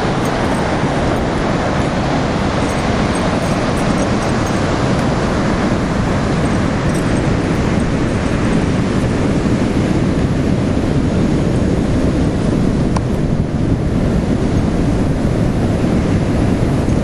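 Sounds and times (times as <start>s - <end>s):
ocean surf breaking: 0.0s - 11.5s
wind buffeting microphone: 0.0s - 17.0s.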